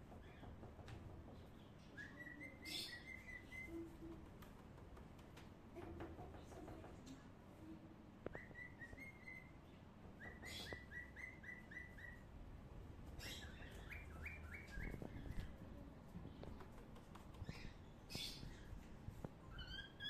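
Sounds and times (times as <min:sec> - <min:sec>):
bird chirping: 0:00.0 - 0:04.2, 0:08.2 - 0:12.3, 0:13.0 - 0:15.7, 0:16.4 - 0:18.9, 0:19.5 - 0:20.0.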